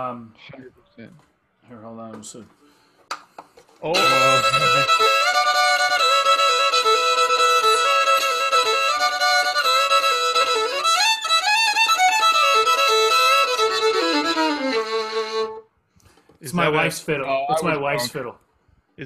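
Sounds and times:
solo fiddle tune: 4.0 - 15.7.

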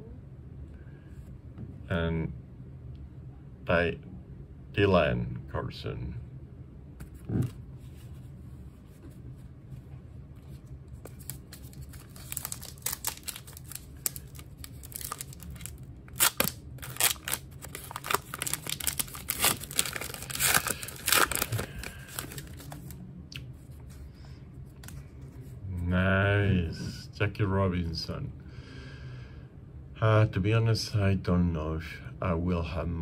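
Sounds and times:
cards being handled: 10.4 - 24.0
wrapper crinkling and tearing: 11.1 - 23.0.

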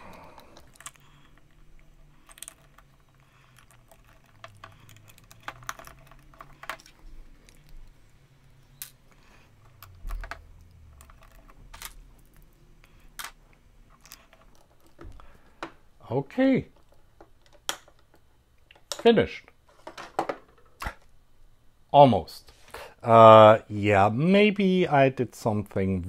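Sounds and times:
plastic bricks clicking: 0.2 - 7.9.

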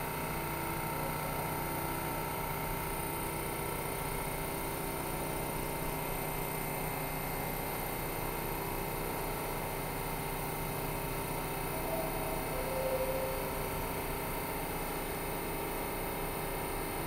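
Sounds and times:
subway train humming: 11.7 - 13.8.

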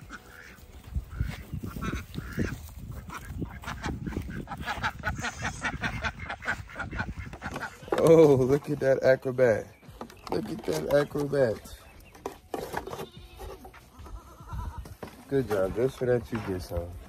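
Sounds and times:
ducks quacking: 0.0 - 9.7.

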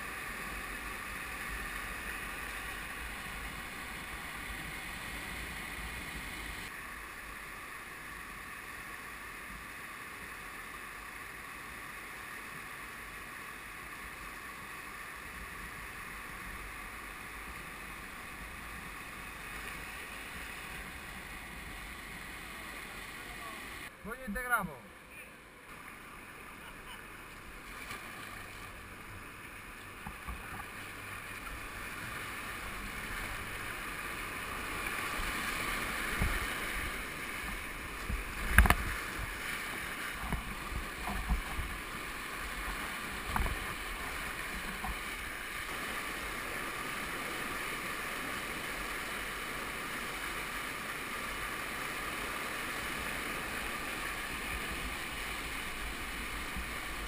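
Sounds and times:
whitewater rushing: 0.0 - 57.0
knocks and splashes against boat: 40.1 - 41.8.

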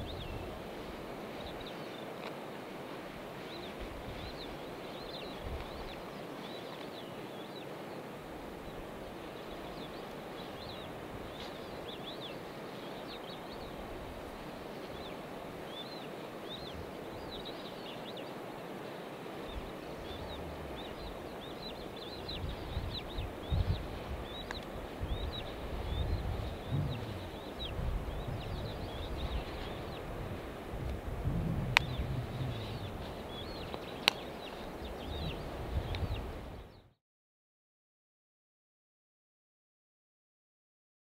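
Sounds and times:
outdoor background noise: 0.0 - 36.9
low rumble: 20.0 - 21.4, 25.9 - 29.3, 31.2 - 33.6.

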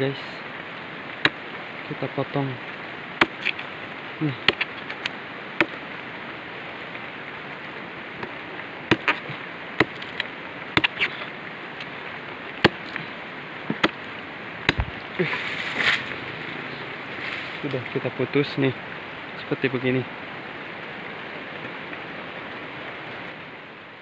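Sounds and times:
steady hiss: 0.0 - 24.0
blade chopping stalk: 3.2 - 3.7, 4.4 - 5.8, 8.9 - 10.2, 10.8 - 11.1, 12.6 - 13.0, 14.7 - 15.0.

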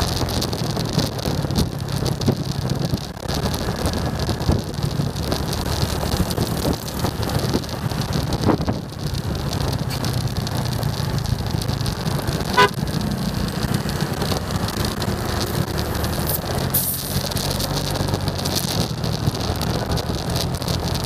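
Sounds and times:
motorcycle engine running: 0.0 - 21.0
wind and road noise: 0.0 - 21.0
vehicle horn toot: 12.5 - 12.8.

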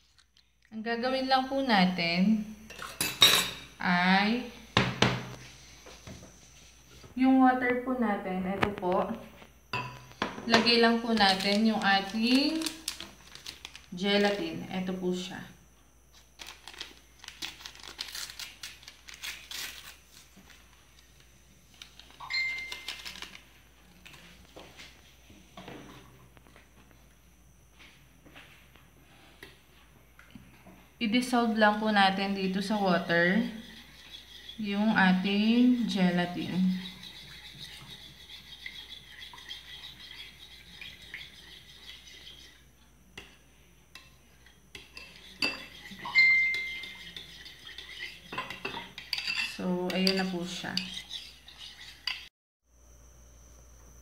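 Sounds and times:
paper packet crinkling: 11.2 - 14.3, 16.3 - 20.8, 21.8 - 24.2
spoon scraping ceramic bowl: 32.5 - 42.7, 44.0 - 52.3
spoon clinking on bowl: 44.0 - 51.0.

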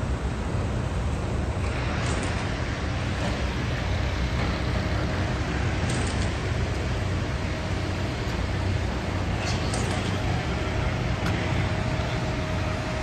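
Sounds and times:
street traffic: 0.0 - 13.0.

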